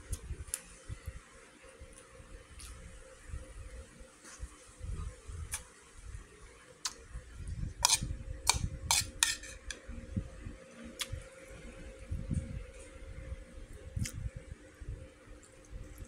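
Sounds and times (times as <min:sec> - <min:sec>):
metal spoon clinking on bowl: 0:07.8 - 0:09.8.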